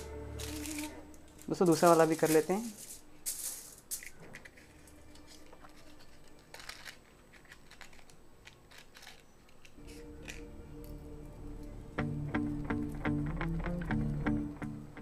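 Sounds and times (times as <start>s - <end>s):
matchbox sliding open: 0.0s - 3.0s, 4.0s - 10.5s
soft background music: 0.0s - 8.0s, 8.6s - 15.0s
foil crinkling: 0.0s - 10.5s
matchsticks clicking and scratching: 0.0s - 11.0s.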